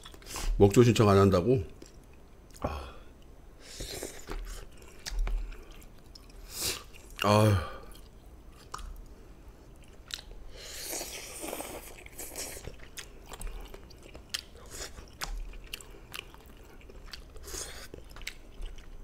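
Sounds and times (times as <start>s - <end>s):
wet chewing: 9.7s - 19.0s.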